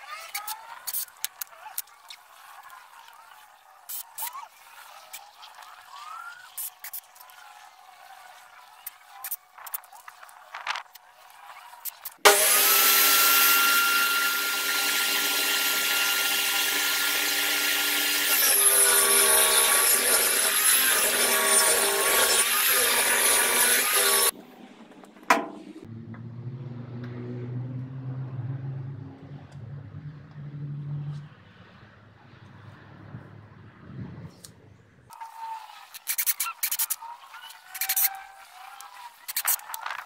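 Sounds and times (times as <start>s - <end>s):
table saw cutting board: 11.9s - 24.4s.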